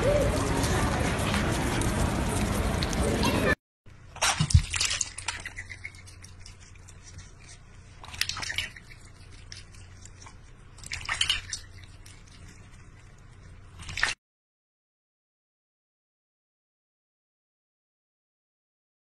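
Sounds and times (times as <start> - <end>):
duck splashing and slurping water: 4.0 - 14.2.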